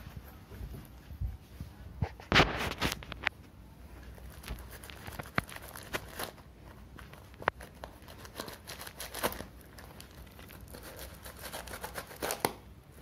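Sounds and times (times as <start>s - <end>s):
packing tape tearing: 7.6s - 12.6s.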